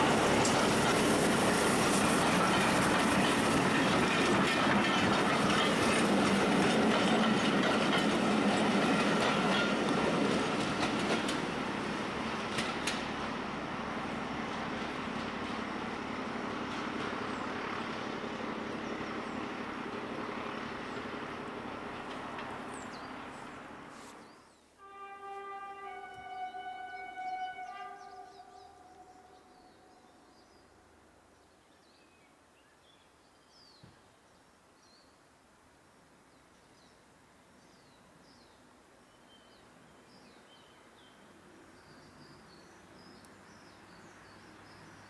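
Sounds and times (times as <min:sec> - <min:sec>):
train coaches rolling on rails: 0:00.0 - 0:24.2.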